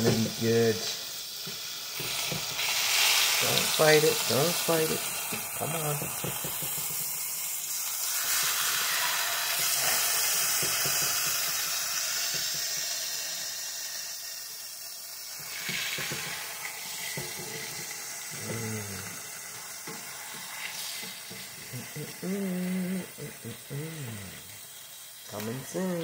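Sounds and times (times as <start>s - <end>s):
food sizzling in a frying pan: 0.0s - 26.0s
spatula scraping a pan: 8.2s - 11.5s.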